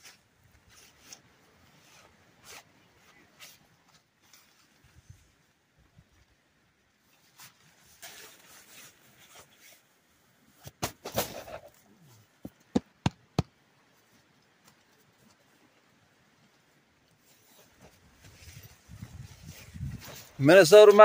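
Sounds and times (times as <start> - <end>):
fabric rustling: 7.2 - 9.9, 17.2 - 20.4
sharp knocks: 12.4 - 13.5.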